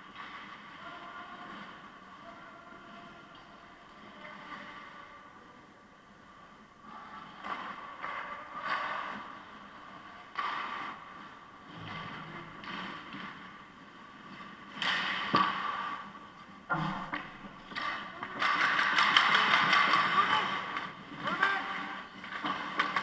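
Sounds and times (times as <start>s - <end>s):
skates scraping ice: 17.6s - 23.0s.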